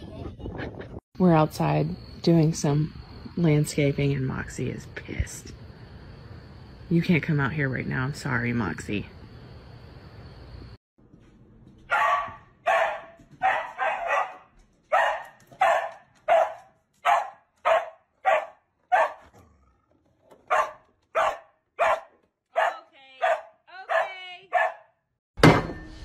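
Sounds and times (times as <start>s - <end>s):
dog barking: 11.9s - 19.5s, 20.4s - 25.0s.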